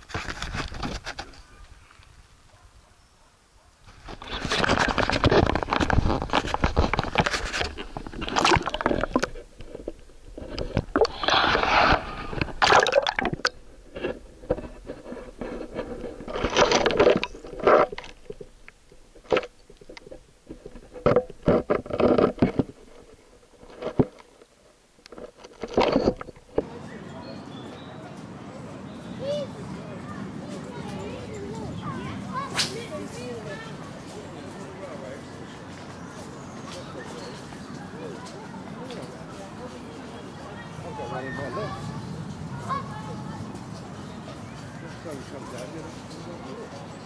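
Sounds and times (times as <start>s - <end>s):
underwater camera handling scrapes: 4.0s - 12.6s
muffled water noise: 4.6s - 14.8s.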